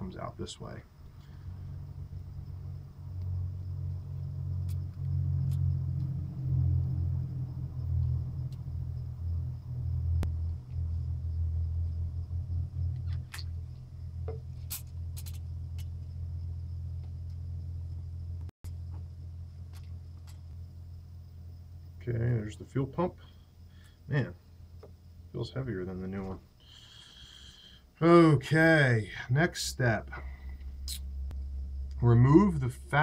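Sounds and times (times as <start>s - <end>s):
low rumble: 0.8s - 22.5s, 29.2s - 33.0s.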